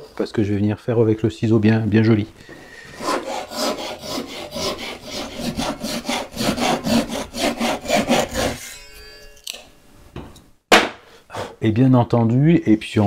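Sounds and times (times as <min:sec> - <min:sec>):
hand saw cutting wood: 0:02.9 - 0:08.9.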